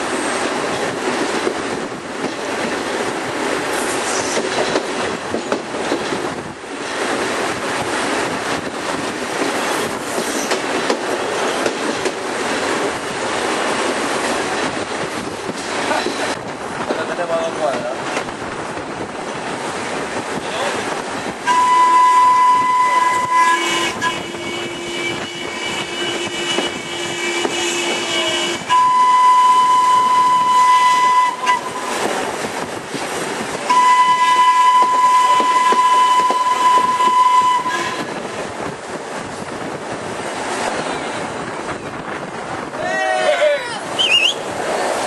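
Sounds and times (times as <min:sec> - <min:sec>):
moving train running noise: 0:00.0 - 0:45.0
steam whistle blasts: 0:21.5 - 0:32.0, 0:33.7 - 0:38.1.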